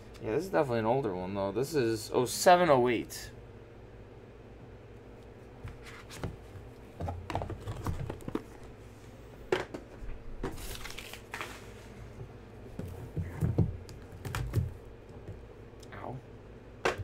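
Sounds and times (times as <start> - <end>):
plastic wrap crinkling: 10.6 - 11.8.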